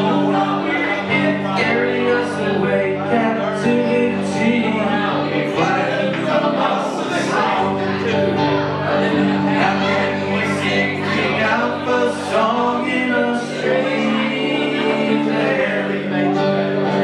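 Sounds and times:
man singing: 0:00.0 - 0:17.0.

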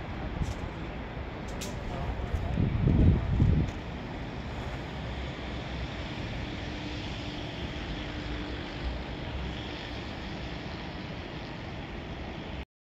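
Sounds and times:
wind on microphone: 0:00.0 - 0:08.1.

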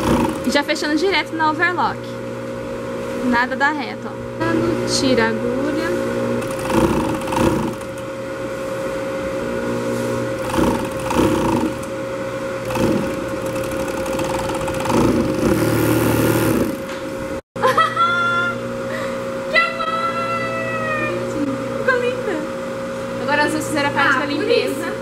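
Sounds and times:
sewing machine stitching: 0:00.0 - 0:00.6, 0:06.4 - 0:08.1, 0:10.4 - 0:12.0, 0:12.6 - 0:17.0
overlock machine motor humming: 0:00.0 - 0:00.8, 0:06.0 - 0:17.4.

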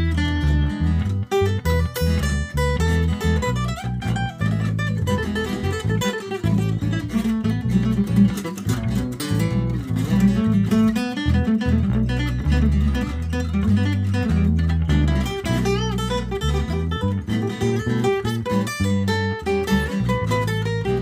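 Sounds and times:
acoustic guitar music: 0:00.0 - 0:21.0.

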